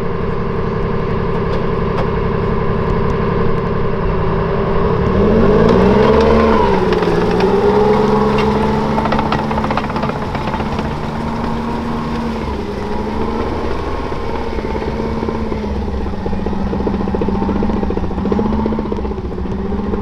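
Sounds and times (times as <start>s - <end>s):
diesel engine running: 0.0s - 20.0s
steel tracks clattering: 5.7s - 19.9s.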